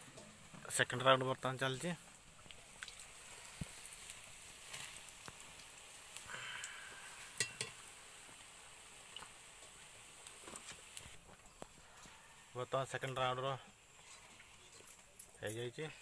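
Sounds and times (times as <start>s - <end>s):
fritters sizzling in oil: 0.0s - 16.0s
metal skimmer clinking on pan: 7.4s - 7.8s.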